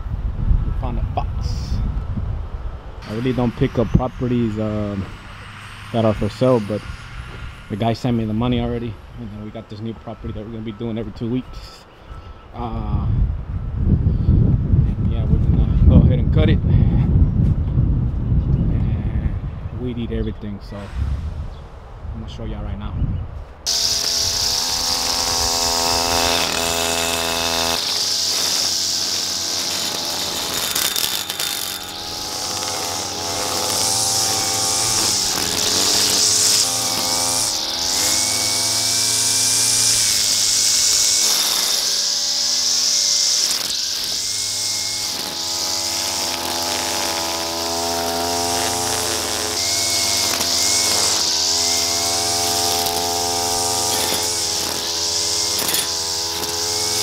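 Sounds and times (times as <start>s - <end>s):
string trimmer running: 3.0s - 8.1s, 23.7s - 57.0s
trimmer line whipping through grass: 23.7s - 57.0s.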